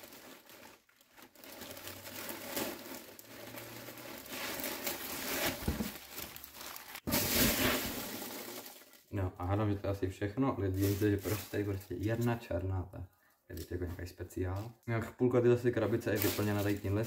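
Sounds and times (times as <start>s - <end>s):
packing peanuts rustling: 0.0s - 9.1s, 10.7s - 12.3s, 15.9s - 17.0s
plastic bag crinkling: 0.0s - 9.2s, 10.7s - 12.4s, 15.8s - 17.0s.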